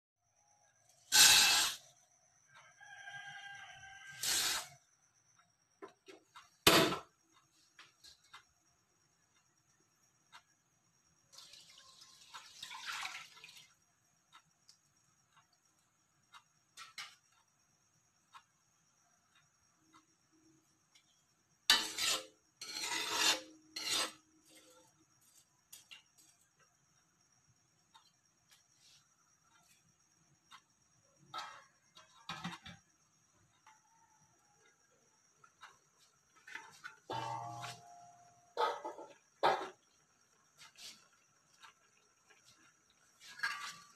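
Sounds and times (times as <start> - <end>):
gas burner igniting burst: 1.1 - 1.8, 4.2 - 4.7
metal ladle scraping wok: 1.1 - 1.8, 4.2 - 4.7, 21.7 - 25.4, 36.6 - 37.9, 43.2 - 43.9
rice pouring into metal wok: 1.1 - 1.8
rooster crowing: 2.6 - 4.2.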